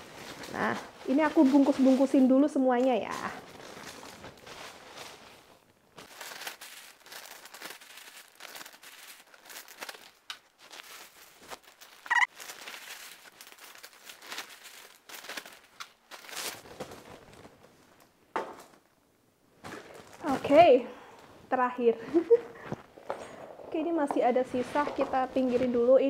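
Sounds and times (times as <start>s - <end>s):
plastic bags crinkling: 0.0s - 18.1s, 19.6s - 20.8s.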